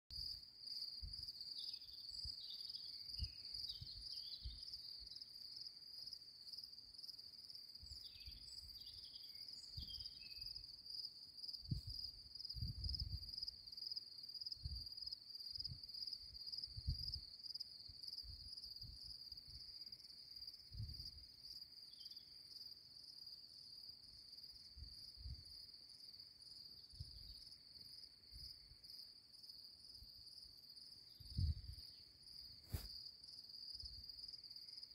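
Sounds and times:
low thumps on microphone: 11.7 - 13.3, 31.2 - 31.7.

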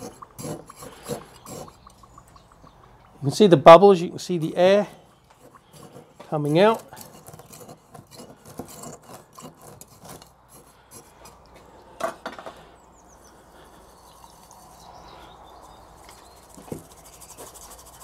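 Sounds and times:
metal stirrer scraping glass jar: 0.0 - 2.2, 4.3 - 11.4.

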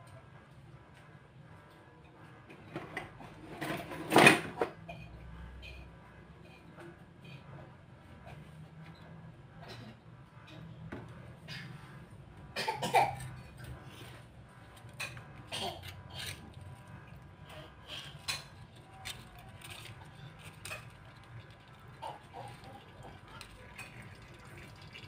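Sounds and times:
person coughing: 12.6 - 13.4
oil ticking and crackling: 16.1 - 25.0.

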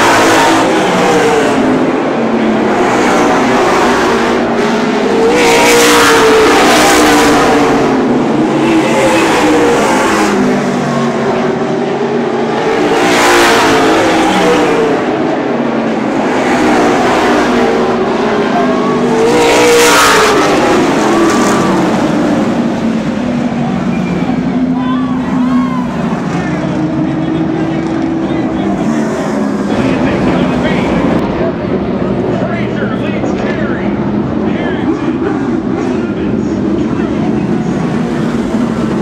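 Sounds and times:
race car engines: 0.0 - 39.0.

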